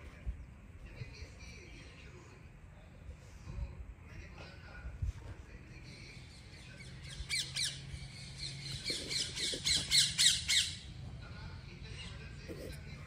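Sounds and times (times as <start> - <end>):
bird squawking: 8.4 - 10.8.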